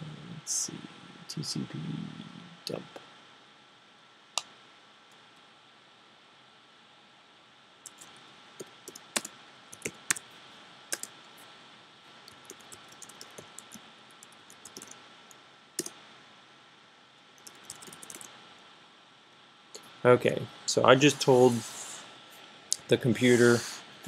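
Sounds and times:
computer keyboard typing: 7.8s - 10.2s, 10.9s - 11.2s, 12.2s - 15.0s, 17.4s - 18.3s.

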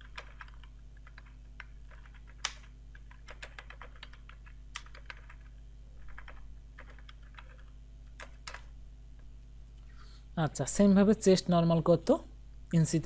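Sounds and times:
computer keyboard key clicks: 0.0s - 5.5s
faint low hum: 0.0s - 13.0s.

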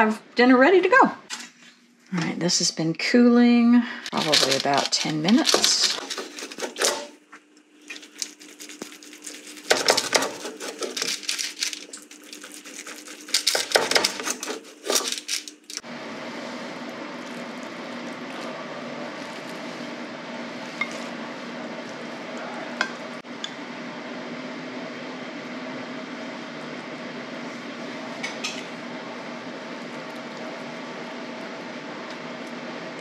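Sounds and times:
knife scraping a sheet pan: 5.5s - 7.1s, 9.2s - 11.4s, 12.3s - 15.2s.

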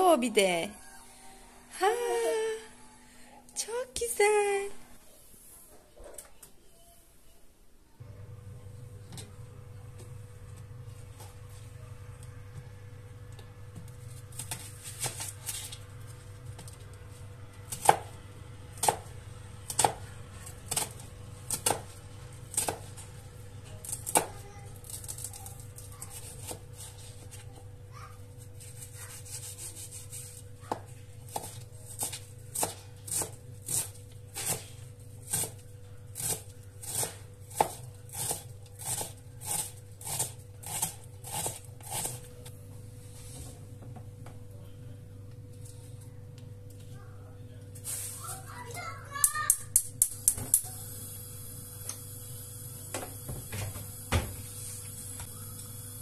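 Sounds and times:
knife chopping onions on board: 28.8s - 34.6s, 35.2s - 35.6s, 36.2s - 42.2s.

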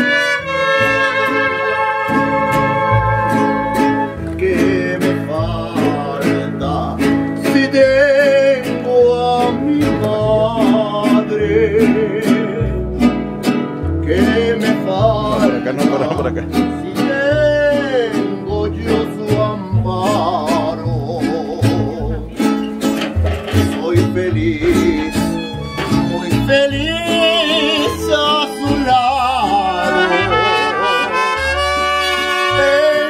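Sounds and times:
bowed violin melody: 0.0s - 4.6s, 22.8s - 33.0s
bass line: 0.0s - 33.0s
strummed guitars: 0.0s - 33.0s.

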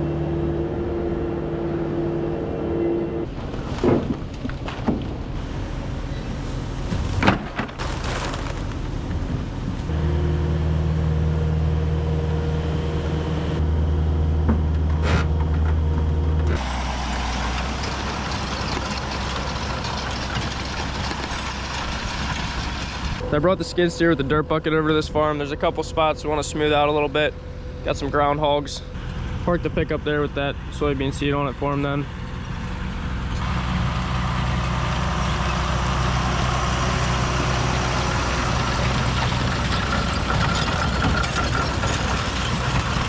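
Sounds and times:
diesel engine humming: 0.0s - 43.0s
tractor broad rushing noise: 16.5s - 23.2s, 32.1s - 43.0s
metal clanks: 17.5s - 22.9s, 38.8s - 43.0s.

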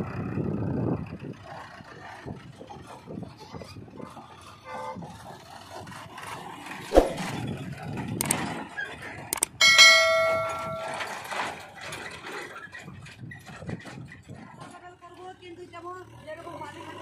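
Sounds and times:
bell-like metallic ring: 9.6s - 11.3s.

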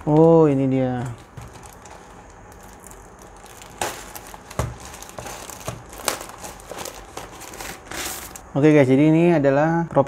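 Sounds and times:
plastic bag crinkling: 1.0s - 8.5s.

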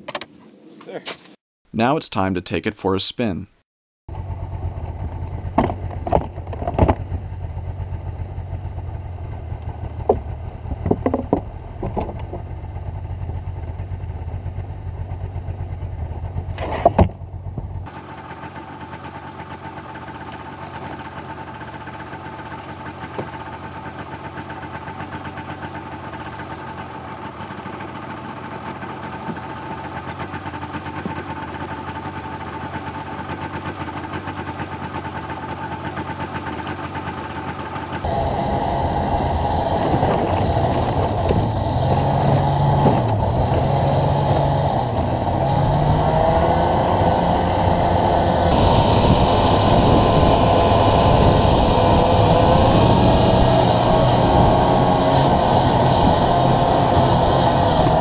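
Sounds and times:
snowmobile engine idling: 4.1s - 58.0s
knocks and thumps in wooden sledge: 5.4s - 7.2s, 9.9s - 12.8s, 16.5s - 17.9s, 30.9s - 32.0s, 39.6s - 45.0s.

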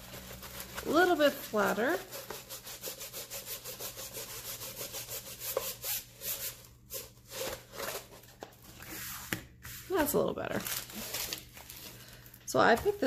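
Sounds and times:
canvas rubbing on tabletop: 0.0s - 6.6s.

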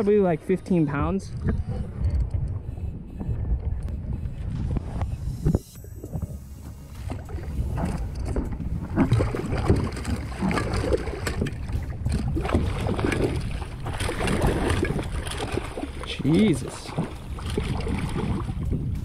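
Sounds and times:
water splashing and churning: 0.0s - 19.0s.

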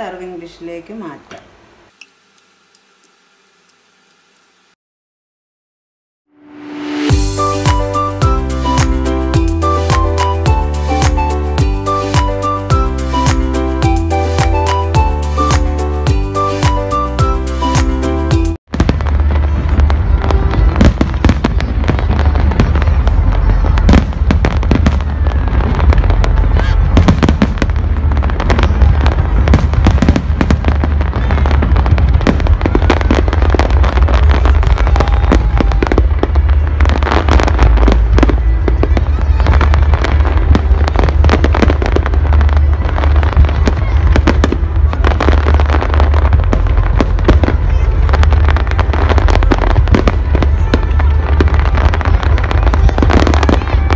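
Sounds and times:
fireworks banging and crackling: 6.8s - 53.9s
low rumble: 18.7s - 53.9s.

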